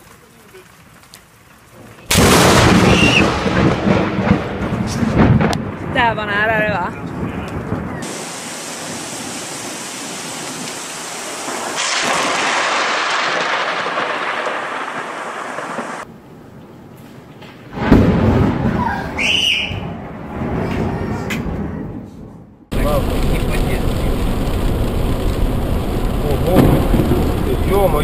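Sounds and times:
heavy rain: 0.0s - 16.1s, 22.7s - 28.0s
rumbling thunder: 1.8s - 16.1s, 17.7s - 19.2s, 19.8s - 22.0s, 22.7s - 28.0s
loud close thunderclap: 2.1s - 16.1s, 17.7s - 22.0s, 22.7s - 28.0s.

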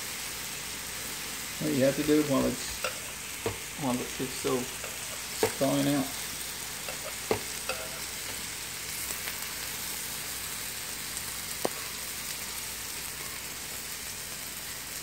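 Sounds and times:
sausages sizzling on a griddle: 0.0s - 15.0s.

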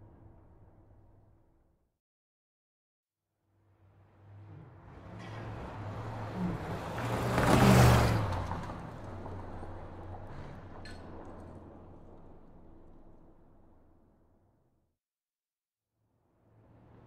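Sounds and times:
vehicle passing by: 4.1s - 12.4s.

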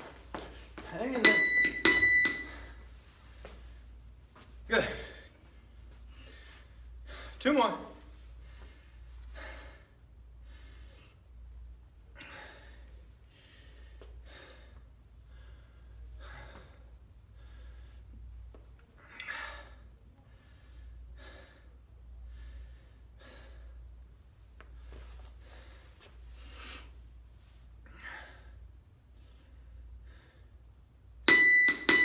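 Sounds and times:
man breathing hard: 4.7s - 7.4s, 8.3s - 11.4s, 12.0s - 27.1s, 27.8s - 30.8s.

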